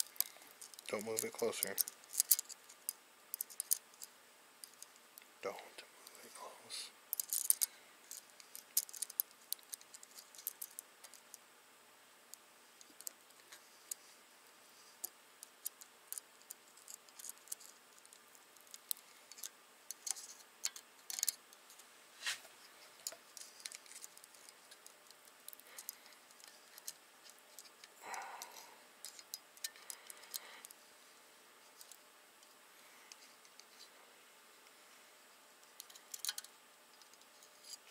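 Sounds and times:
small metallic clicks: 0.0 - 5.3, 7.1 - 11.4, 15.0 - 21.9, 23.0 - 30.8, 35.6 - 37.8.

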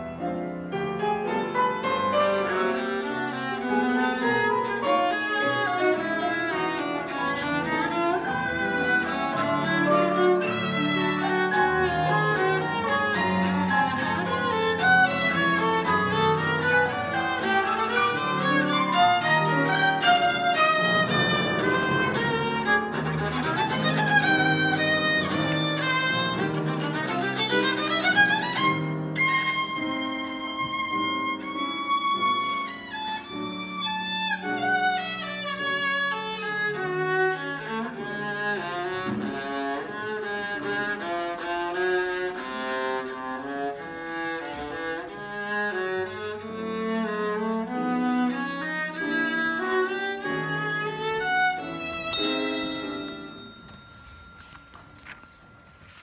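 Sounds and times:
piano chords: 0.0 - 56.0
viola playing fast runs: 1.3 - 43.2.

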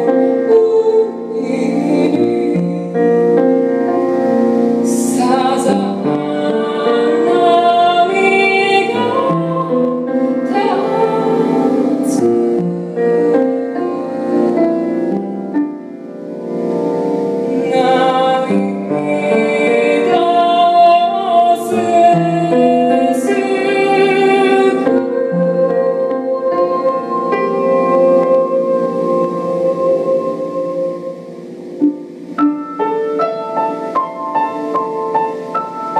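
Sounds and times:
woman singing: 0.0 - 3.6, 4.8 - 14.5, 17.5 - 31.4
piano accompaniment: 0.0 - 35.9.

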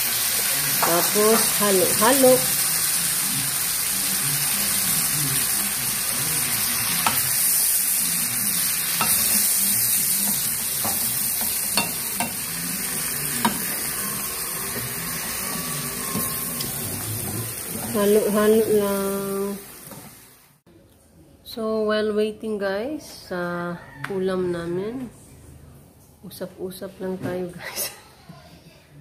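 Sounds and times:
food sizzling in a frying pan: 0.0 - 20.6
spatula tapping pan: 9.0 - 9.5, 10.2 - 12.4.

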